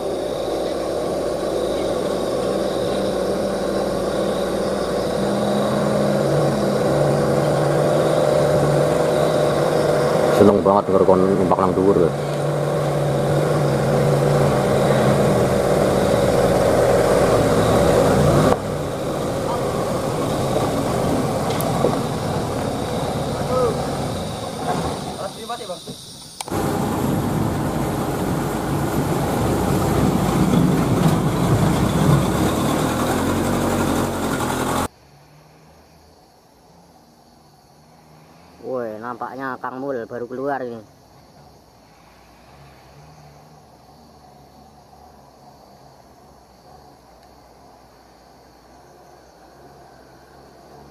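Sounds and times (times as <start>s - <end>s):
diesel truck engine running: 0.0s - 34.9s
tyre and road noise: 0.0s - 50.9s.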